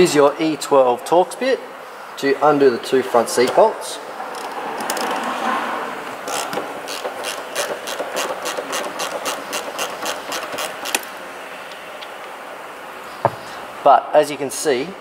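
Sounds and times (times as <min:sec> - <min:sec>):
socket ratchet clicking: 0:06.2 - 0:11.1.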